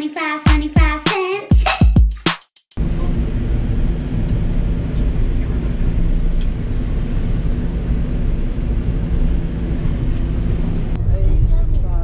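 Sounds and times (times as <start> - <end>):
passenger train rumbling: 2.8 - 12.0.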